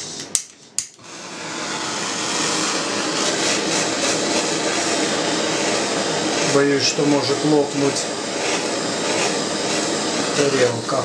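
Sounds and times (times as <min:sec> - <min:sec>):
gas torch flame hissing: 0:00.0 - 0:11.0.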